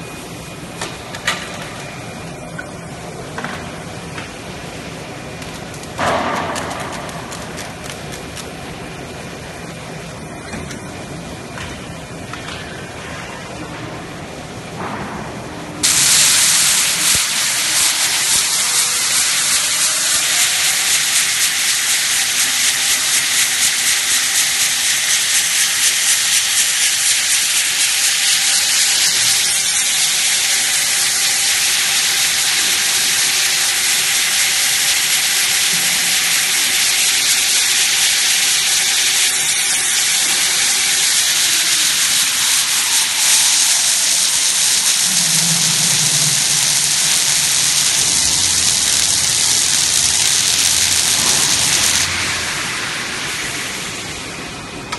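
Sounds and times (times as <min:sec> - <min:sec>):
tape winding machine hissing: 0:15.8 - 0:54.9.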